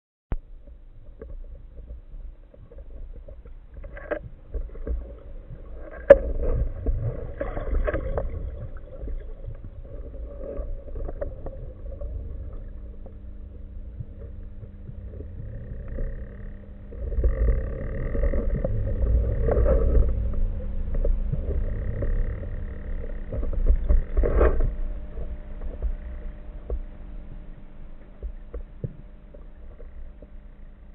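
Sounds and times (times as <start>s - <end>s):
underwater rumble of moving water: 0.3s - 30.9s.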